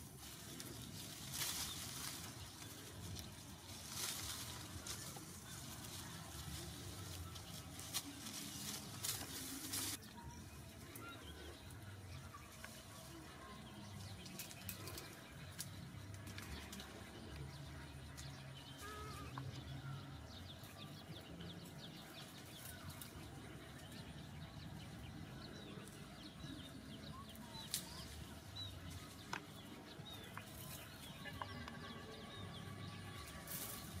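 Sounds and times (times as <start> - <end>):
small birds chirping: 0.0 - 34.0.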